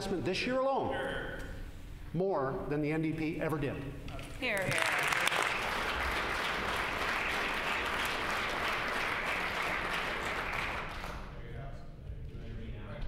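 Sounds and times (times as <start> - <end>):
crowd applause: 4.7 - 11.3.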